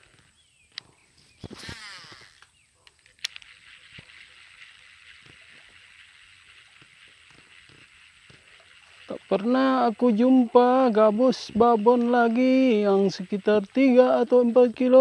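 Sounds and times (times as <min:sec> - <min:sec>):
low steady hiss: 0:00.0 - 0:15.0
fishing reel click: 0:00.8 - 0:08.6
reel spool whirring: 0:01.3 - 0:15.0
faint reel ticks: 0:02.4 - 0:14.9.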